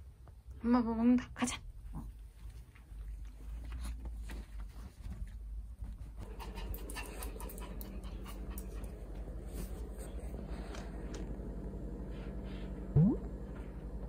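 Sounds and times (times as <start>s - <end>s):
dog panting: 6.2s - 10.9s.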